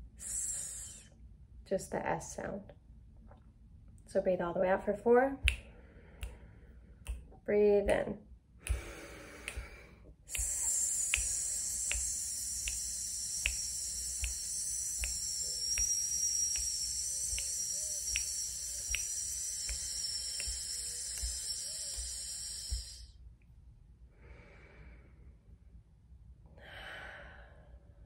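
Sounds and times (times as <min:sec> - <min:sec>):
woman hissing on out-breath: 0:00.2 - 0:01.1, 0:08.7 - 0:23.1
finger snaps: 0:05.4 - 0:06.4, 0:07.0 - 0:23.1.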